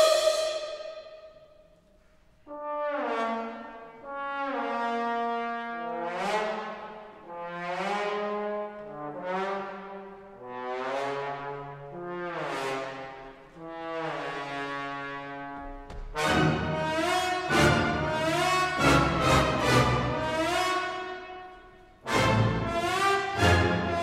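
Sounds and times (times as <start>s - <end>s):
held musical note: 0.0s - 1.6s
swelling chords: 16.2s - 24.0s.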